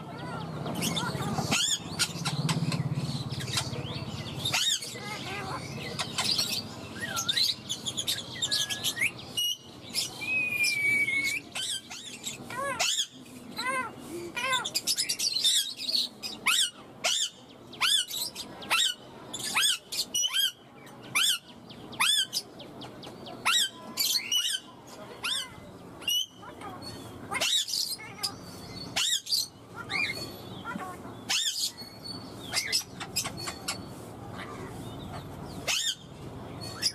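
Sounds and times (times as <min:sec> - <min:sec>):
parakeet chirps and squawks: 0:00.2 - 0:03.8, 0:04.4 - 0:10.2, 0:11.1 - 0:22.6, 0:23.4 - 0:36.9
parakeet held whistle: 0:10.2 - 0:11.8.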